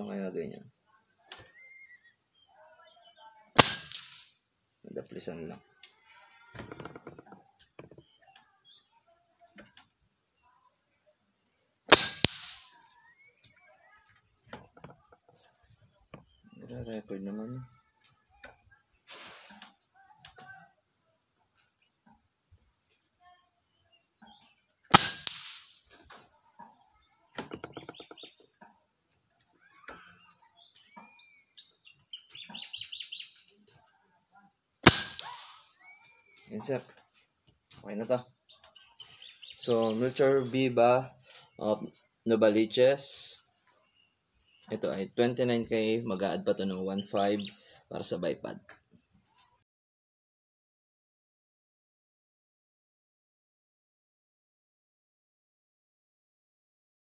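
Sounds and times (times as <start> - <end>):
birds calling: 0.0 - 11.1, 11.8 - 20.6, 21.4 - 33.8, 34.8 - 49.6
air rifle shot crack: 3.6 - 4.3, 11.9 - 12.7, 24.9 - 25.8, 34.8 - 35.7
sharp click: 34.9 - 35.6.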